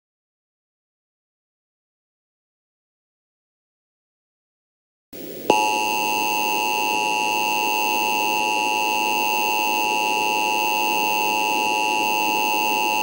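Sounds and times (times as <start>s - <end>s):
two-tone alarm: 5.5s - 13.0s.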